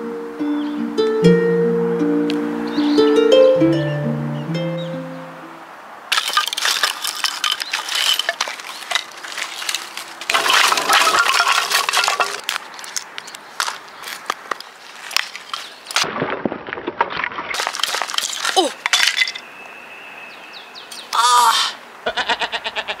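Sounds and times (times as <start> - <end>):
hatchet splitting kindling: 6.1 - 16.1
firewood clattering on gravel: 6.1 - 19.5.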